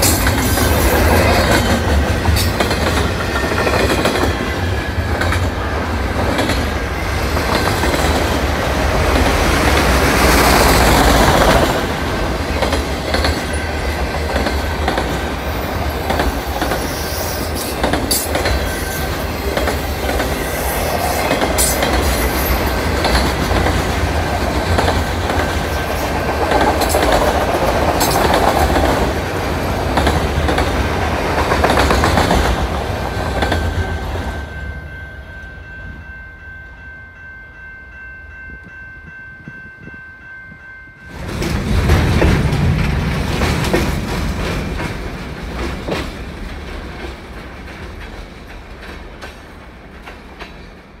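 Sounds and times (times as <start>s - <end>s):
freight train wheels clacking: 0.0s - 34.8s, 40.5s - 51.0s
passing freight train: 0.0s - 51.0s
level crossing bells ringing: 34.3s - 41.3s.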